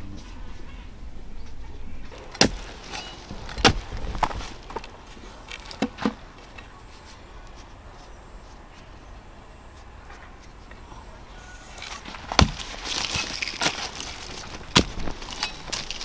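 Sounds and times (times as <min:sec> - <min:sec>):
sharp knocks: 0:12.3 - 0:13.3.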